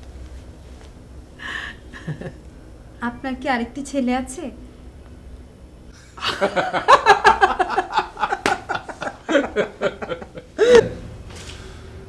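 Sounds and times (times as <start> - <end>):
person laughing: 1.4 - 2.4, 6.1 - 11.0.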